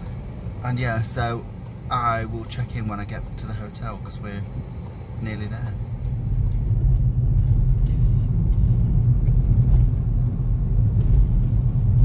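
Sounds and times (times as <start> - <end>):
car interior road and engine rumble: 0.0 - 12.0.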